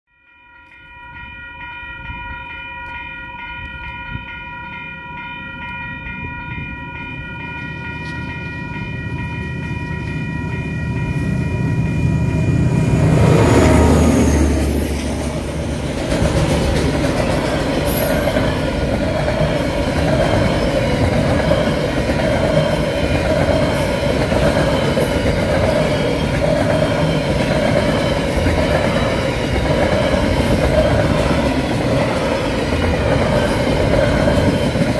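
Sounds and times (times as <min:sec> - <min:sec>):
level crossing alarm bells ringing: 0:00.1 - 0:12.8
train wheels rattling on rails: 0:06.6 - 0:34.9.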